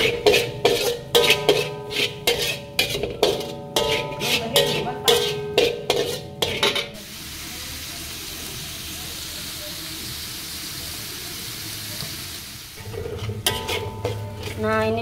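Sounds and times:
metal spatula striking wok: 0.0s - 7.0s, 12.8s - 15.0s.

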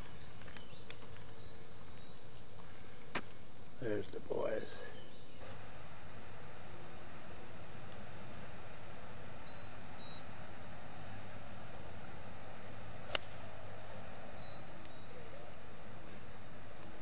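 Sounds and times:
outdoor hiss: 0.0s - 17.0s
golf club striking ball: 13.0s - 13.7s.

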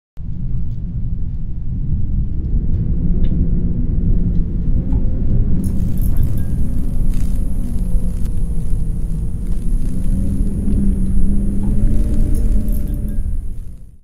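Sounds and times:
deep steady rumble: 0.2s - 14.0s
faint held tone: 5.6s - 14.0s
high shimmering hiss: 5.6s - 14.0s.

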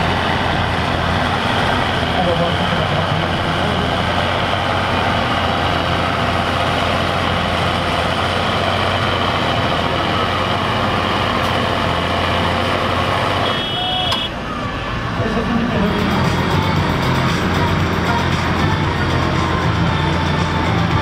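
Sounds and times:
tractor diesel engine droning: 0.0s - 21.0s
brief high tone: 13.4s - 14.4s.

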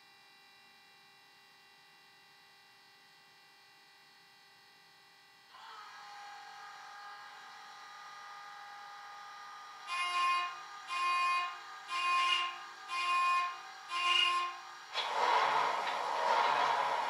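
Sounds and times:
steady electrical hum: 5.1s - 17.0s.

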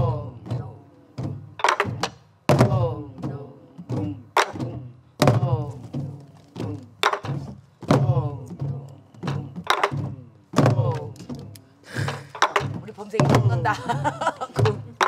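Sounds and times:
drum booms: 0.0s - 15.0s
sticks cracking on drum bodies: 1.2s - 2.8s, 4.4s - 8.0s, 8.6s - 13.7s.

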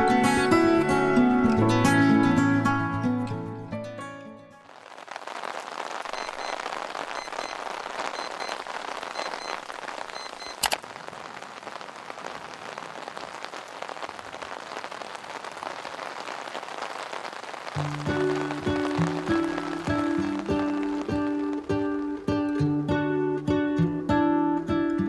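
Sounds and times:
steady rain falling: 4.5s - 24.7s
faint high peeps: 6.1s - 10.7s
sharp click: 10.5s - 10.8s.

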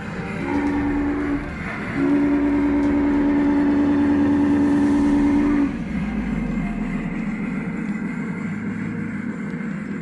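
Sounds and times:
low rumble of train running: 0.0s - 10.0s
model train whistle: 0.3s - 6.2s.

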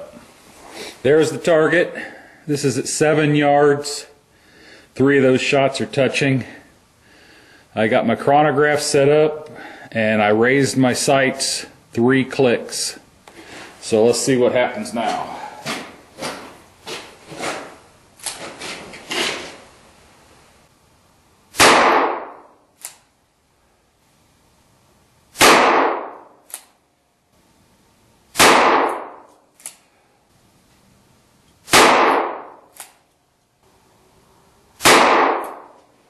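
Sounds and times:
handgun shots: 21.6s - 23.0s, 25.4s - 26.7s, 28.4s - 29.8s, 31.7s - 33.0s, 34.8s - 35.8s.

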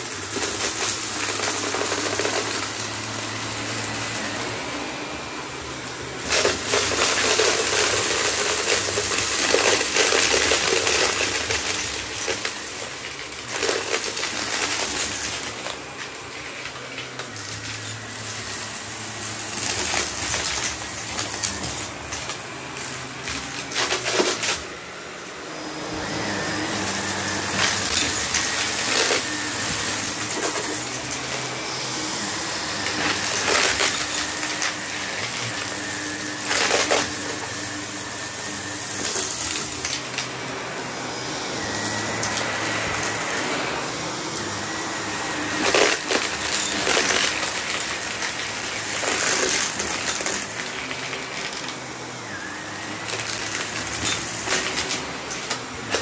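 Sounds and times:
upright vacuum cleaner running: 0.0s - 56.0s
debris crunching and rattling: 6.2s - 18.6s, 19.3s - 24.7s, 26.6s - 31.4s, 32.8s - 38.0s, 45.4s - 51.8s, 53.0s - 56.0s.

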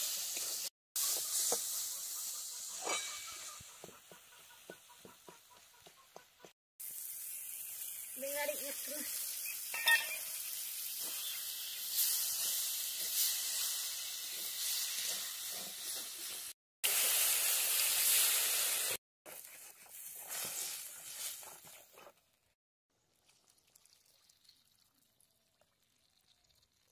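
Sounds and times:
food sizzling in a pan: 0.0s - 3.7s, 6.8s - 21.7s.

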